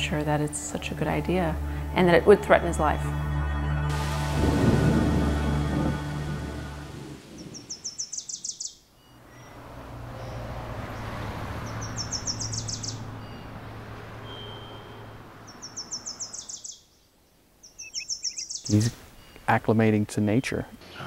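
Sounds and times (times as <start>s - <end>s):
wash of noise: 3.9s - 8.0s, 9.3s - 15.8s
high pulsed chirping trill: 11.7s - 16.8s.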